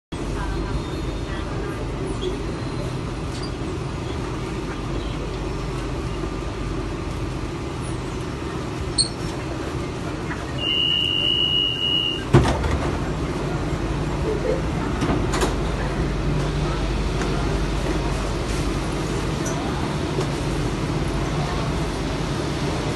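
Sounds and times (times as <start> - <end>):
metro train car rumble: 0.1 - 22.9
sliding doors clunking open: 12.3 - 13.1.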